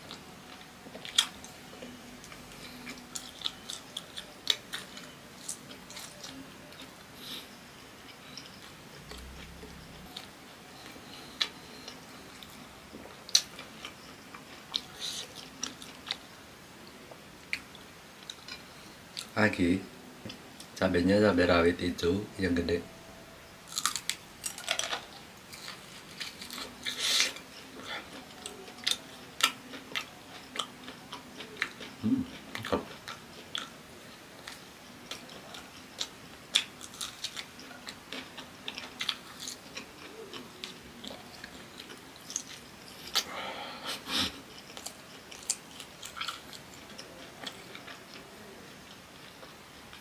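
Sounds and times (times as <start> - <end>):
crunchy bites and chewing: 23.7 - 27.4, 34.4 - 43.3.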